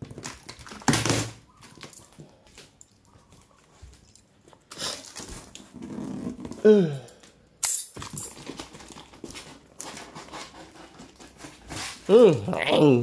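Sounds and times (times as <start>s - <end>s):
packing tape pulled off cardboard: 4.6s - 6.6s, 8.3s - 12.1s.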